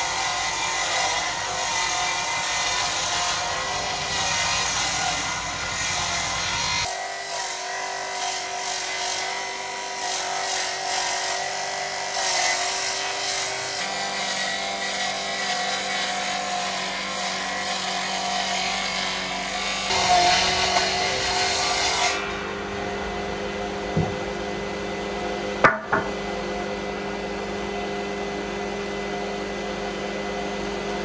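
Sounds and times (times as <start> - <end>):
circular saw ripping wood: 0.0 - 23.1
low hum: 22.2 - 29.2.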